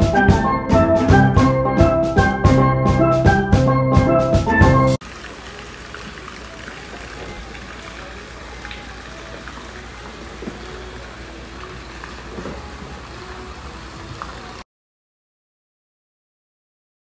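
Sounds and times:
steel pan music: 0:00.0 - 0:05.0
fountain water trickling: 0:05.0 - 0:14.6
faint voices: 0:05.2 - 0:14.6.

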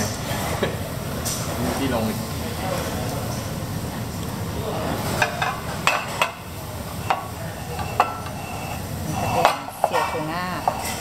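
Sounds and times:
dining room background noise: 0:00.0 - 0:11.0
cutlery and crockery clinking: 0:05.0 - 0:11.0.

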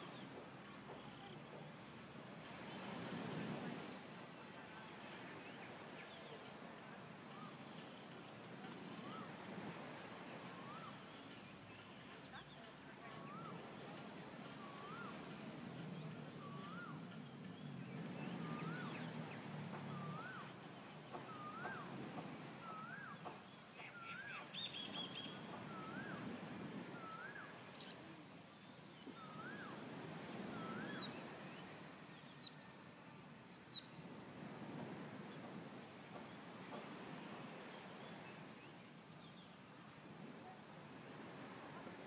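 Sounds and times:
higher downward-sweeping bird call: 0:10.3 - 0:12.1, 0:14.5 - 0:15.4, 0:16.0 - 0:17.3, 0:18.3 - 0:28.2, 0:29.0 - 0:31.4.

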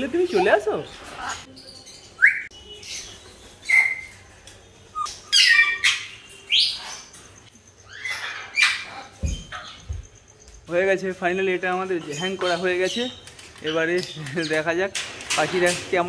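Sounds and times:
parrots squawking and chirping: 0:00.0 - 0:04.2, 0:04.9 - 0:09.9.

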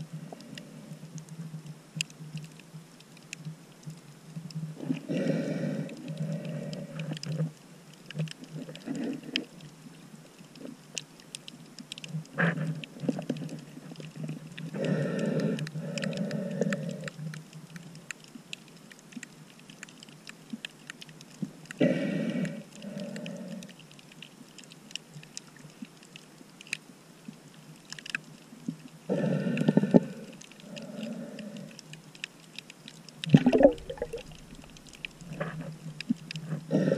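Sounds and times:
muffled snorkel breathing: 0:00.0 - 0:01.5, 0:04.8 - 0:09.7, 0:12.0 - 0:18.0, 0:21.7 - 0:23.9, 0:29.1 - 0:32.0, 0:33.3 - 0:36.9
underwater crackle of clicks: 0:00.0 - 0:36.9.

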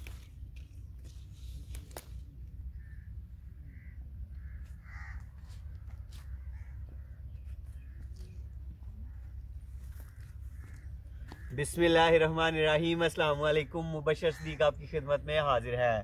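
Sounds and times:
crows cawing: 0:02.7 - 0:15.4.

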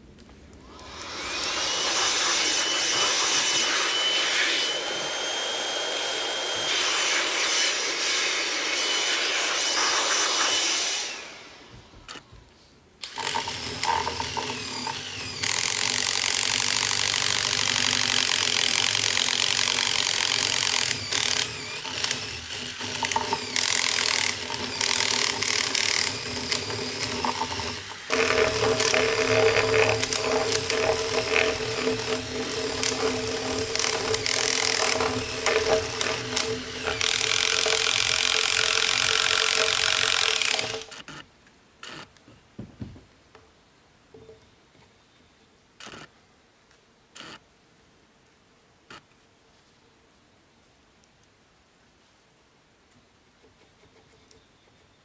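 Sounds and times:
cordless drill boring into wood: 0:00.7 - 0:12.2, 0:13.0 - 0:41.2.

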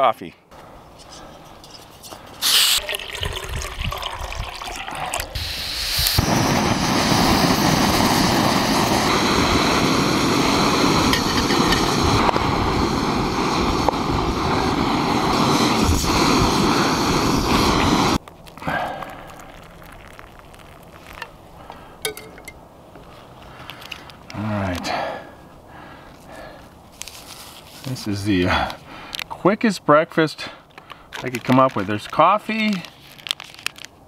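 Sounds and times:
gas stove burner hissing: 0:02.4 - 0:02.8, 0:05.4 - 0:18.2.

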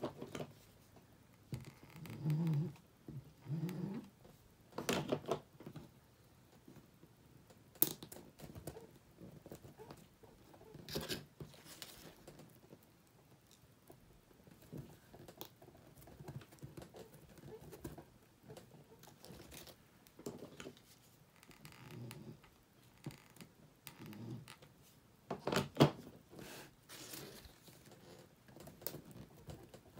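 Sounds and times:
ribbon rustling: 0:26.4 - 0:29.9.

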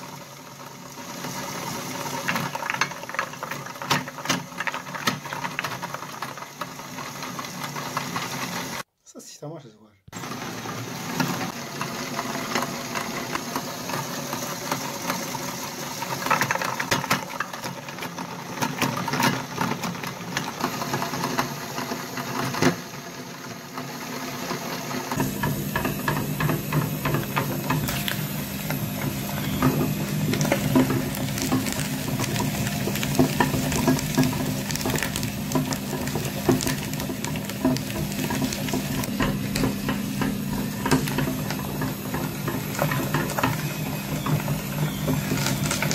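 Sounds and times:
meat grinder crunching: 0:00.0 - 0:08.9, 0:10.1 - 0:45.9
motor hum with clicks: 0:24.5 - 0:45.9.

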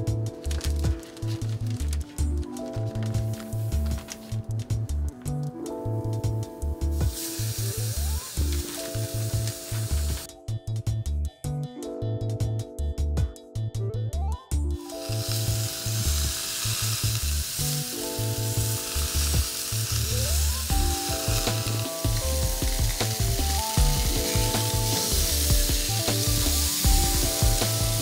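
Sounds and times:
background music with steady beat: 0:00.0 - 0:28.0
burgers sizzling on a grill: 0:06.9 - 0:10.3, 0:14.8 - 0:28.0.

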